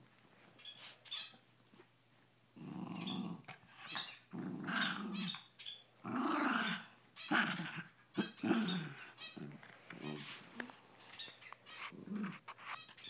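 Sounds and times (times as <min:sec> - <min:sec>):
dogs growling: 0:02.6 - 0:05.4, 0:06.0 - 0:10.8, 0:11.9 - 0:12.5.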